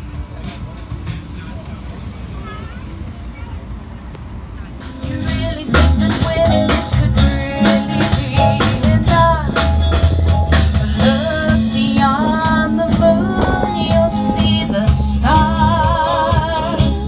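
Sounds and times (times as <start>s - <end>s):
drum kit beats: 0.0s - 2.0s, 4.8s - 17.0s
keyboard: 0.0s - 17.0s
electric guitar: 4.8s - 17.0s
bass notes: 4.9s - 17.0s
woman singing: 5.0s - 17.0s.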